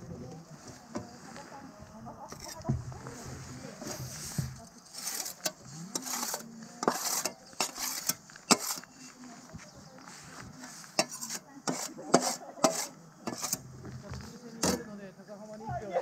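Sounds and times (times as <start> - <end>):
glass scraping: 3.8 - 9.2, 10.9 - 13.7.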